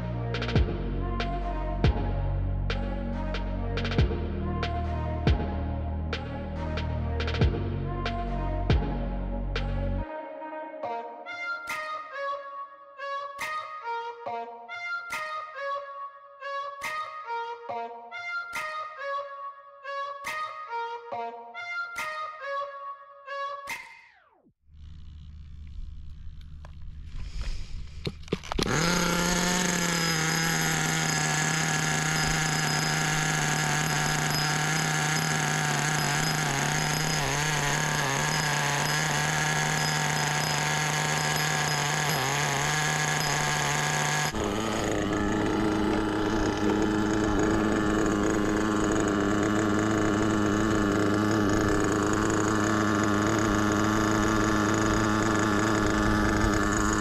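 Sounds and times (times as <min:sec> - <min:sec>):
model car engine running: 0:24.7 - 0:57.0.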